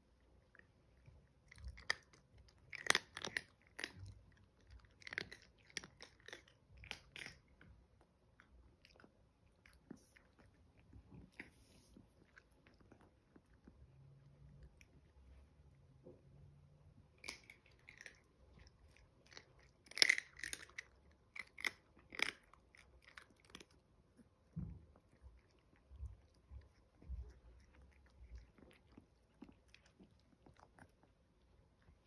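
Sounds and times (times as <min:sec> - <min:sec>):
puppies crunching dry kibble: 0:01.5 - 0:07.6, 0:17.2 - 0:23.8.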